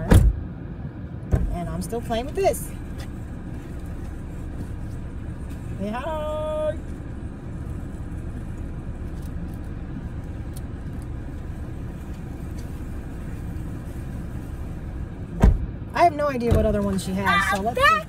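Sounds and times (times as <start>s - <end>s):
low rumble inside car: 0.0s - 18.0s
car door shutting: 15.3s - 15.7s.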